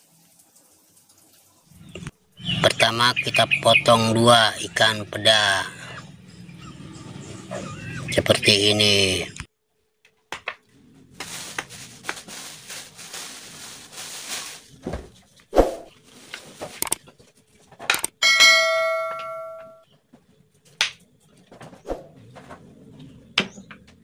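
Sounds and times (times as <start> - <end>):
bell chime: 18.2 - 19.8.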